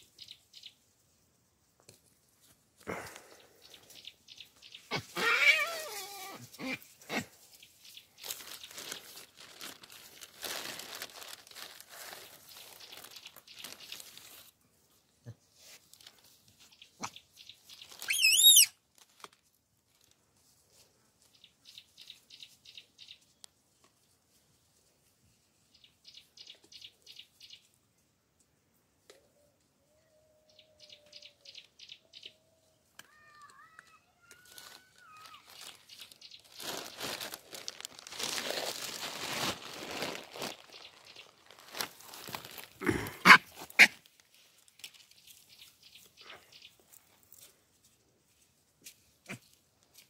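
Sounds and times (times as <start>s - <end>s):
crackling and rustling: 3.9s - 14.6s, 15.6s - 22.6s, 33.0s - 50.0s
rapid high chirping: 18.0s - 18.7s.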